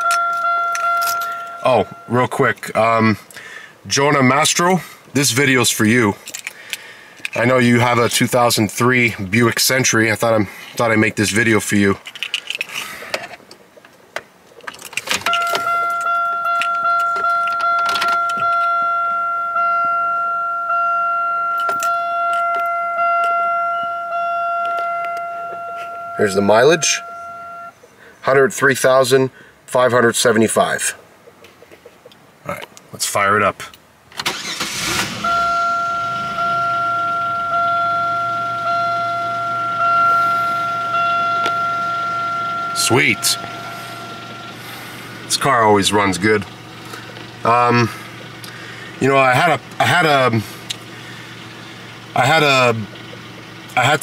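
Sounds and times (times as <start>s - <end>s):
car warning chime dings: 0.0s - 3.1s, 15.2s - 27.8s, 34.3s - 48.4s.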